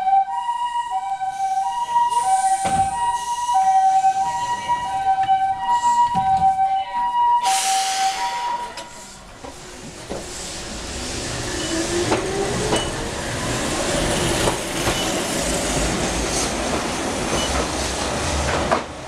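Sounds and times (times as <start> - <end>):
two-tone electronic warning signal: 0.0 - 9.1
loud hiss: 7.4 - 9.3.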